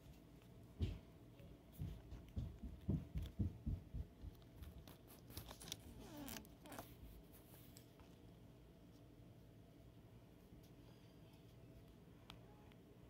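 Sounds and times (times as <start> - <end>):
soft bumps: 1.7 - 5.3.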